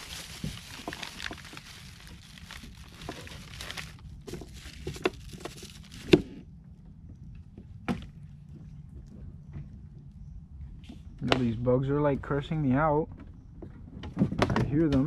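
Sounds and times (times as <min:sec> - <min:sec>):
plastic bag rustling: 0:00.0 - 0:06.4.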